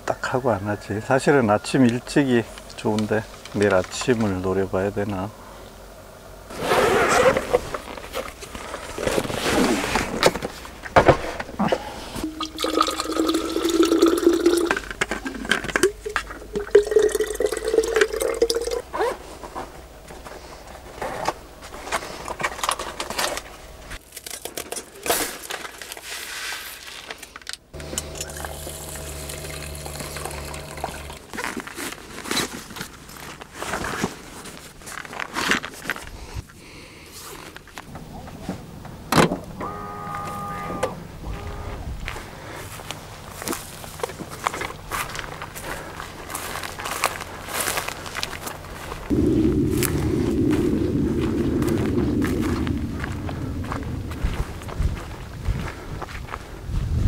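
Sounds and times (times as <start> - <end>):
low steady hum: 7.2 - 24.3, 27.7 - 34.6, 37.9 - 55.7
water pouring and splashing: 12.2 - 18.8, 28.2 - 31.4.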